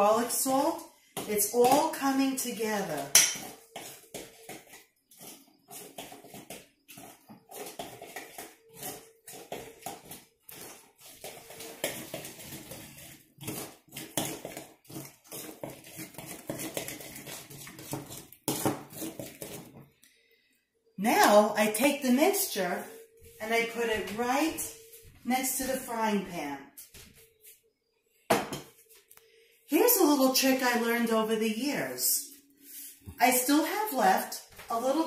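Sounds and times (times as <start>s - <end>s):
spoon stirring batter: 0.0s - 20.5s.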